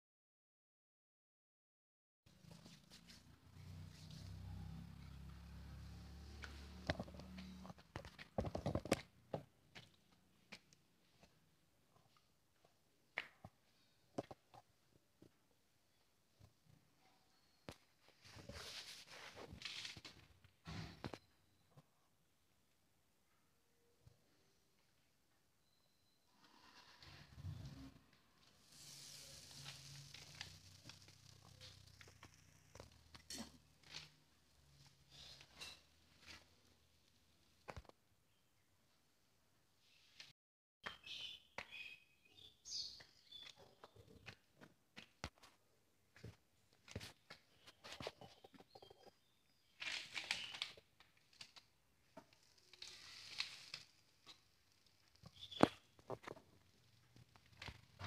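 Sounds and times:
flatbread sizzling on hot pot: 28.4s - 34.0s, 52.4s - 55.3s.

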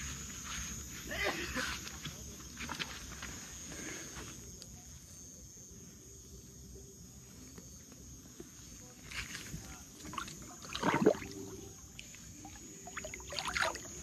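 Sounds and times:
water sloshing and splashing: 10.0s - 11.6s, 12.4s - 14.0s.

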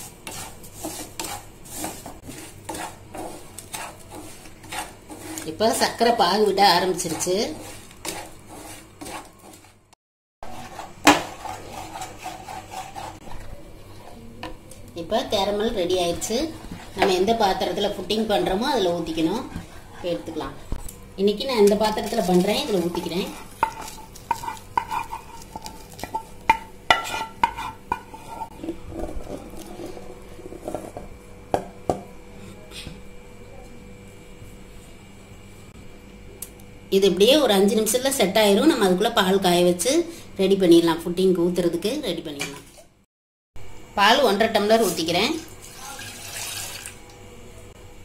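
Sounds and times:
spatula scraping sugar in pan: 0.0s - 9.8s, 10.4s - 14.2s, 21.7s - 31.0s.

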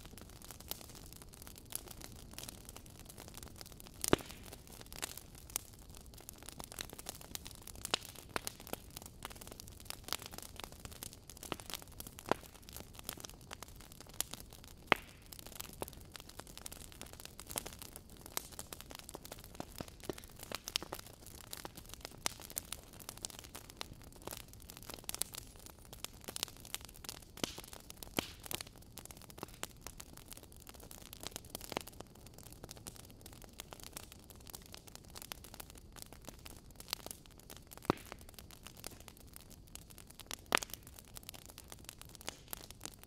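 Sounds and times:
wood fire crackling: 0.0s - 43.0s.

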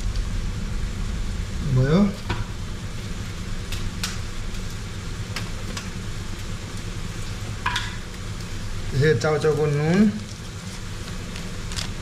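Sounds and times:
noodles sizzling in a wok: 0.0s - 12.0s
sharp crackles: 8.0s - 12.0s.

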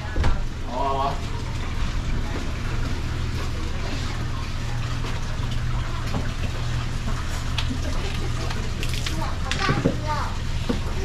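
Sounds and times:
running water rushing: 0.0s - 11.0s.

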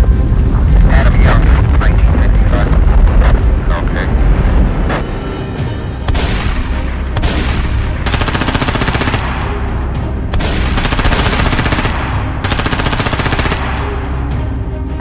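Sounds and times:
machine-gun fire bursts: 7.2s - 9.6s, 10.4s - 14.1s.

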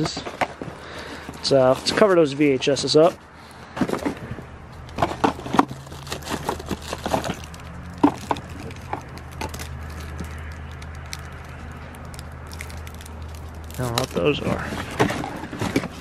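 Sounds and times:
plastic bottles and cardboard knocking: 4.9s - 11.0s, 14.5s - 16.0s.

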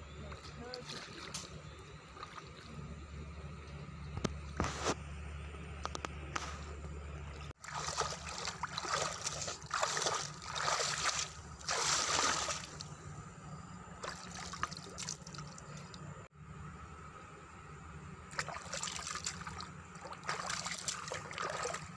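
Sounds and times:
shallow water splashing: 7.5s - 12.9s, 14.0s - 16.0s, 18.3s - 21.9s.

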